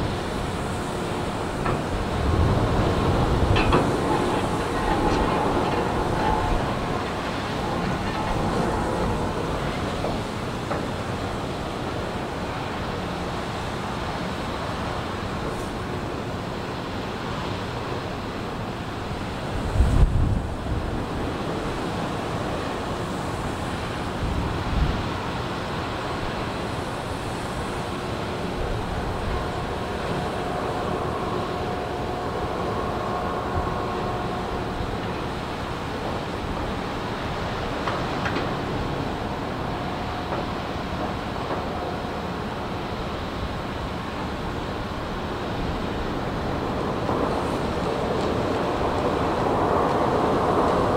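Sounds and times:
faint machinery whine: 0.0 - 50.9
ship engines rumbling: 0.0 - 50.9.

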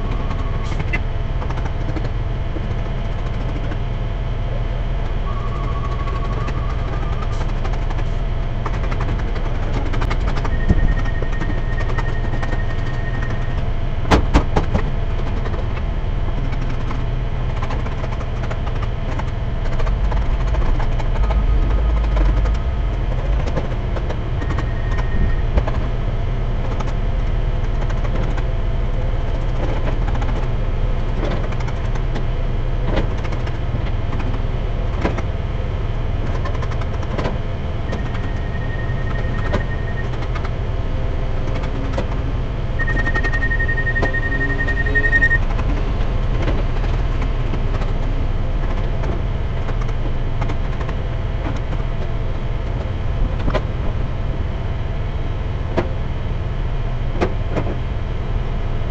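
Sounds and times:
diesel loader engine running: 0.0 - 58.9.

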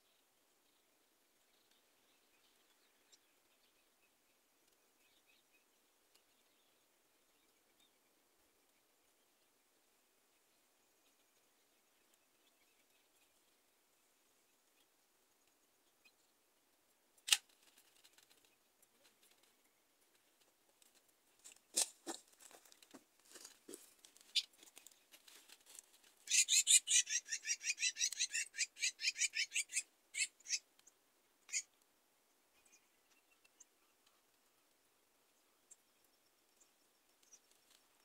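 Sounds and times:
bird's rapid chattering call: 26.3 - 30.6.

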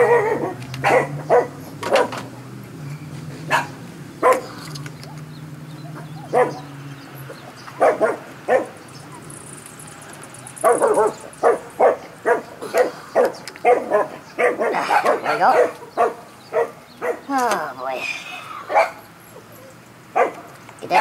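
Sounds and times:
dog barking: 0.0 - 2.3, 3.5 - 4.6, 5.8 - 6.7, 7.7 - 9.3, 10.5 - 17.3, 18.6 - 19.0, 20.1 - 21.0.

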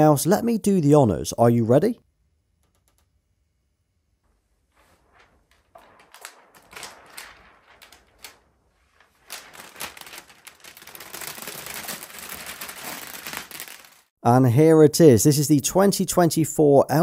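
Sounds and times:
plastic film peeling and crackling: 4.8 - 14.1.

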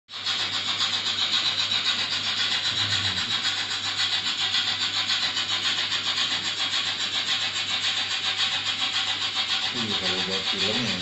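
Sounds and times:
model train running on track: 0.1 - 11.0.

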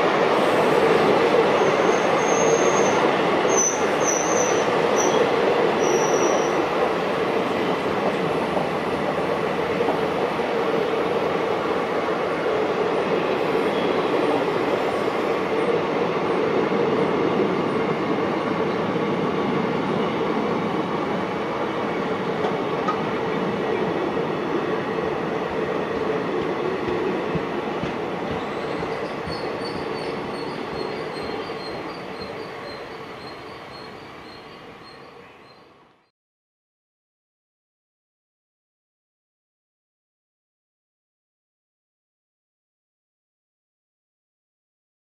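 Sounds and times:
train rolling past: 0.0 - 35.9.

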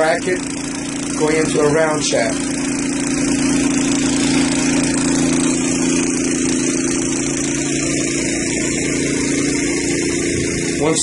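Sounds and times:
engine humming steadily: 0.0 - 11.0.

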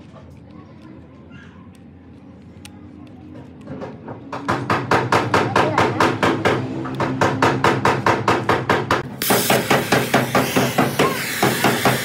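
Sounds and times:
gas torch flame hissing: 9.1 - 12.0.

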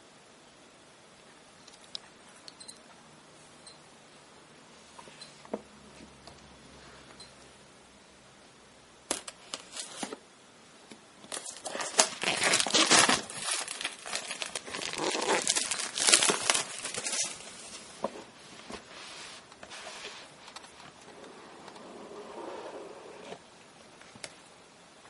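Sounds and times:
sharp plastic crackles: 11.2 - 17.7
plastic wrap crinkling: 11.3 - 18.9.

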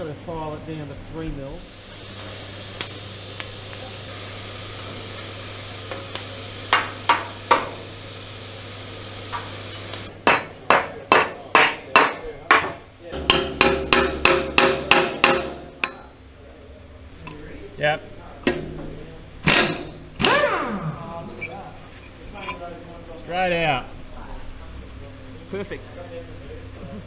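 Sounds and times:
hammer striking metal: 9.4 - 16.1.

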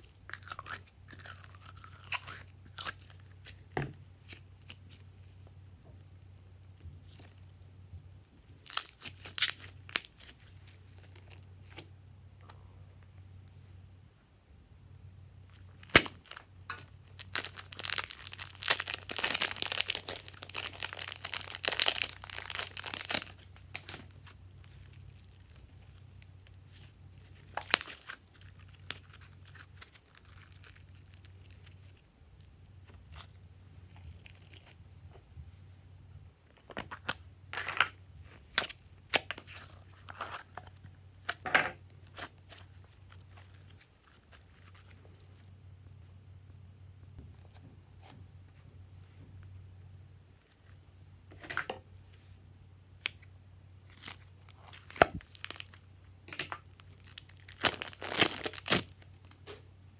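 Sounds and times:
slime stretching and crackling: 0.0 - 5.6, 8.2 - 13.2, 15.5 - 34.8, 38.2 - 45.5, 53.0 - 59.7
faint low hum: 0.0 - 59.9.

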